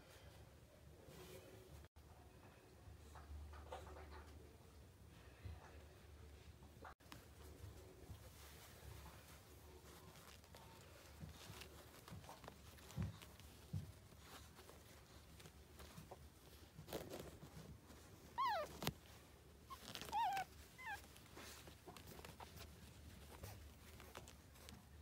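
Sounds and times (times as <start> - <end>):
puppies squeaking and whimpering: 18.3 - 18.9, 19.7 - 21.1.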